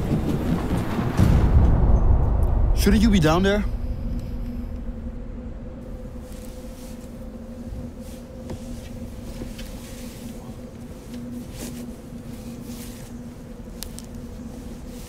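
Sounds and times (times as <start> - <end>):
low ambient hum: 0.0 - 15.0
faint rustles and ticks: 5.9 - 15.0.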